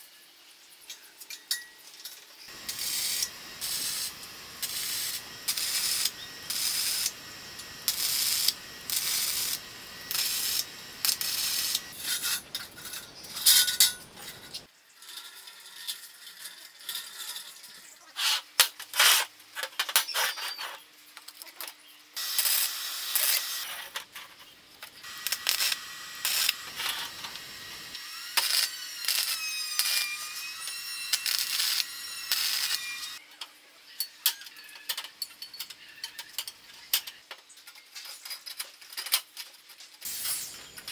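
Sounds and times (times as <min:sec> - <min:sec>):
high squeaky scraping: 0:02.5 - 0:14.7
arc welding crackle: 0:02.5 - 0:17.7, 0:22.2 - 0:33.2, 0:40.0 - 0:40.9.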